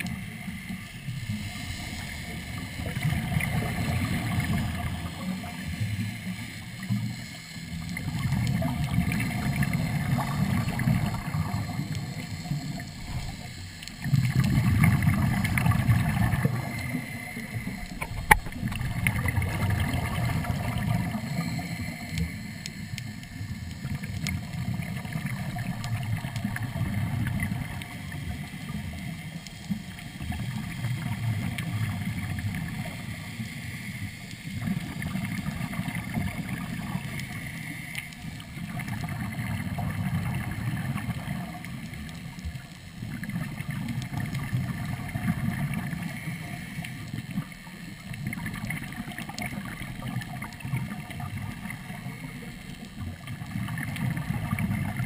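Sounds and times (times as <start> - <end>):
diver exhaling bubbles underwater: 1.1 - 6.2, 7.8 - 22.3, 48.1 - 55.0.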